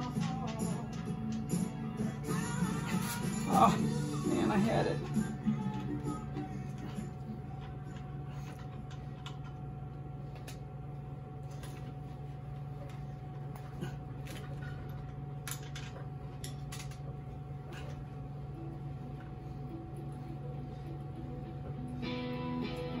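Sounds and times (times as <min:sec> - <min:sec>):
steady low hum: 0:00.0 - 0:23.0
metal parts clicking: 0:15.4 - 0:17.0.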